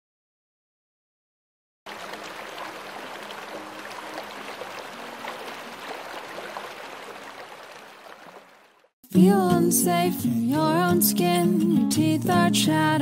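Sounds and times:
stream flowing over rocks: 1.9 - 8.9.

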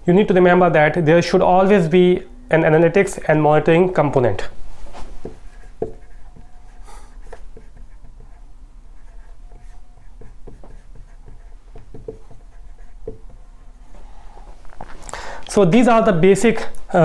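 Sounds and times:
marker writing on whiteboard: 5.2 - 13.7.

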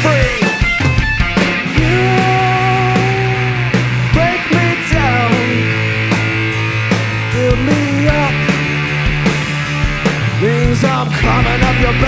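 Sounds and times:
bass guitar line: 0.0 - 12.0
drum kit hits: 0.0 - 12.0
electric guitar bending notes: 0.0 - 12.0.

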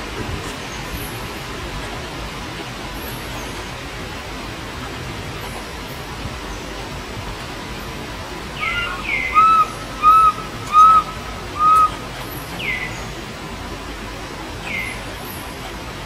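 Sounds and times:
baby monkey shrill coo calls: 8.6 - 12.0.

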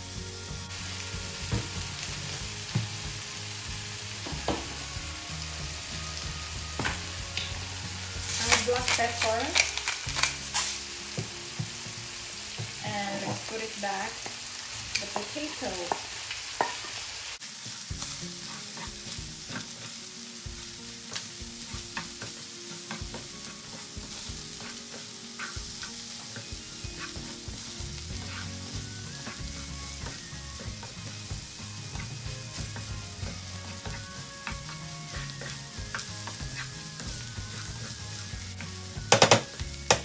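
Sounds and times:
food sizzling in frying pan: 0.0 - 40.0
wooden spatula scraping pan: 21.1 - 31.2, 31.8 - 38.2.

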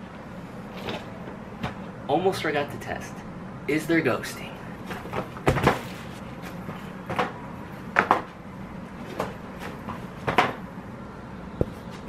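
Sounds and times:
feet knocking on footpads: 4.9 - 7.4.

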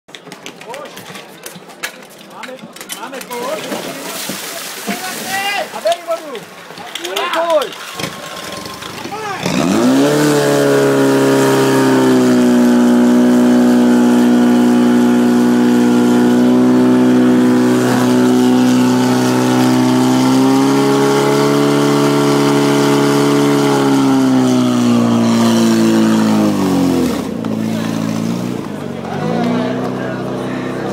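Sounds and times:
pump engine high-pitched drone: 7.8 - 30.9.

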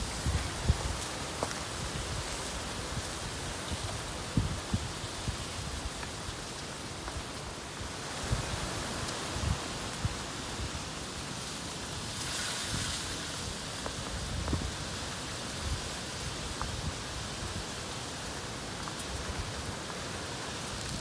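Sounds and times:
chicken sizzling in hot oil: 12.1 - 13.3.

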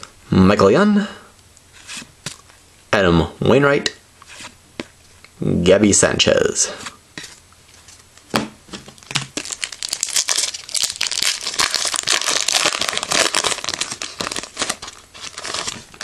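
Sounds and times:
foil wrapper crinkling: 9.0 - 16.0.

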